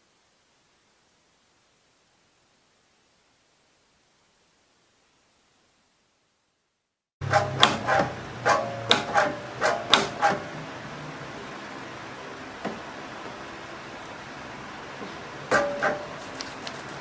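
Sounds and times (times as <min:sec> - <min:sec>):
steady hiss: 0:00.0 - 0:06.9.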